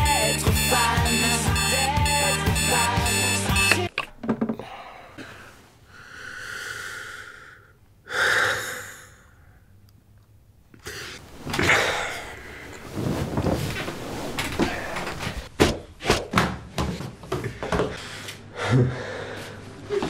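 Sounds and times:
man sighing: 4.6 - 5.5
bedcovers rustling: 11.2 - 11.8, 12.4 - 16.3.

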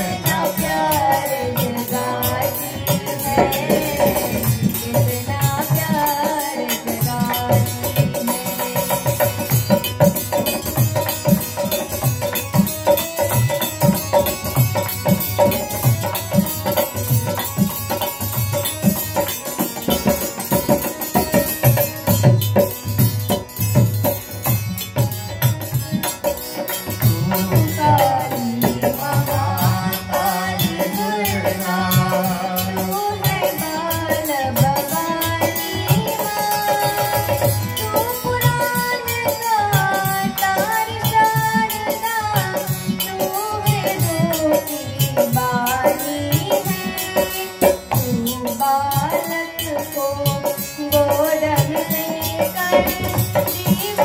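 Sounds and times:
woman singing: 0.0 - 11.9, 26.8 - 54.0
dholak drum rhythm: 0.0 - 54.0
harmonium: 0.0 - 54.0.

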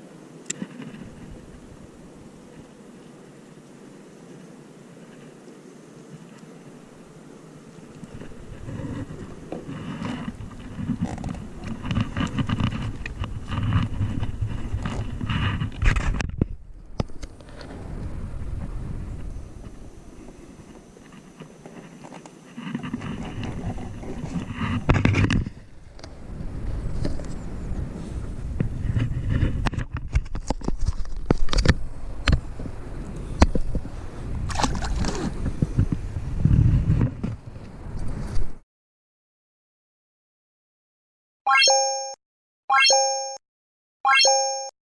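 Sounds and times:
rubbing against rubber hull: 8.1 - 16.2, 21.0 - 25.6
bright two-toned ding: 41.5 - 43.4, 44.1 - 44.7
rising chime notes: 41.5 - 43.4, 44.1 - 44.7.

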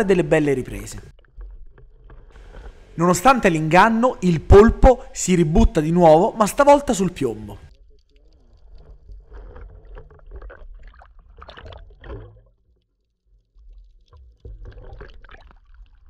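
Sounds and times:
sea water lapping: 2.4 - 3.8.

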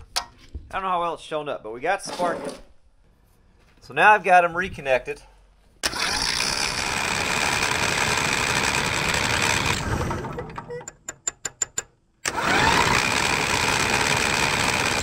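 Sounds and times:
electric starter cranking engine: 5.8 - 10.7, 12.2 - 15.0.

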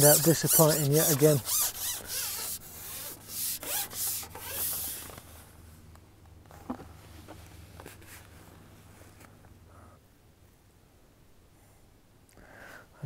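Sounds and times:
fishing pole rubbing and swishing: 0.0 - 5.2.

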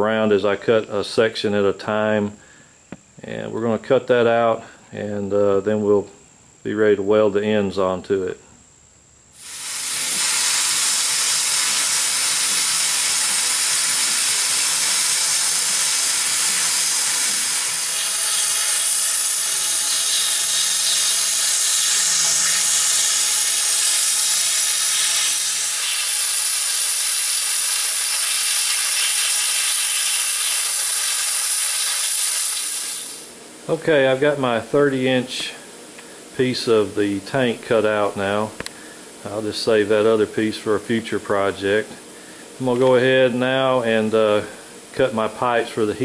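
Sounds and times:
plasma cutter hissing: 9.4 - 33.4.

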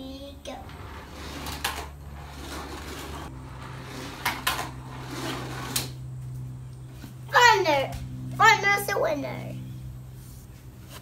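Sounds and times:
steady low hum: 0.0 - 11.0
toy trucks running on plastic track: 0.8 - 6.0.

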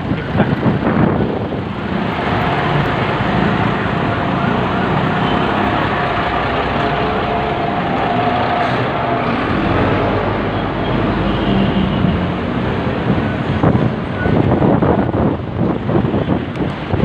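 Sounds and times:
engines idling and rumbling: 0.0 - 17.0
steady whine: 0.9 - 14.4.

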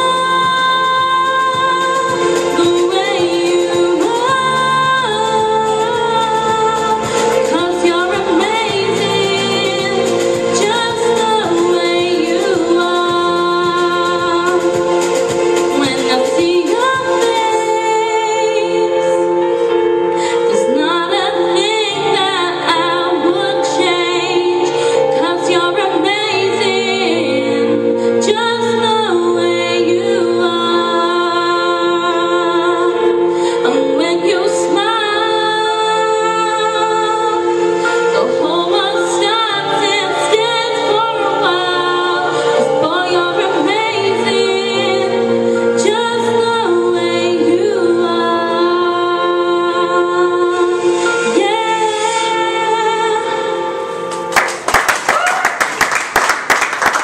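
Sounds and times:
sustained accompanying chords: 0.0 - 54.4
woman singing into a microphone: 0.0 - 54.4.

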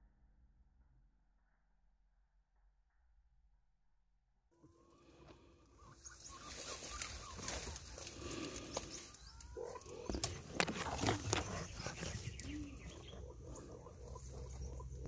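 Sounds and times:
birds calling: 4.6 - 15.0.

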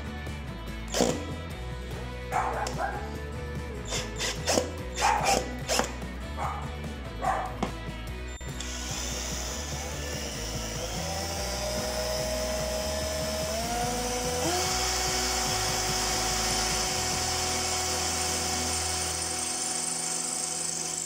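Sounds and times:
cordless drill whining: 0.8 - 1.4, 3.8 - 6.2, 8.2 - 21.0.

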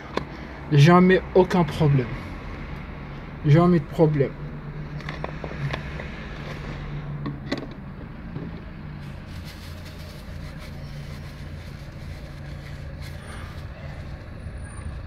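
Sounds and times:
low mechanical hum: 4.9 - 15.0.

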